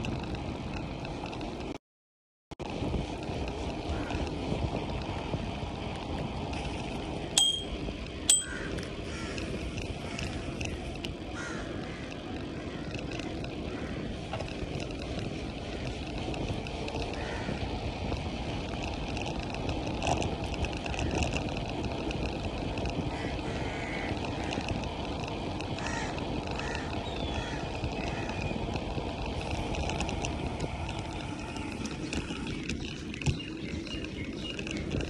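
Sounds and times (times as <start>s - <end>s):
bicycle tyre rumble on pavement: 0.0s - 1.8s, 2.6s - 35.0s
wind rushing over microphone: 2.6s - 35.0s
bicycle bell ringing: 7.4s - 8.7s.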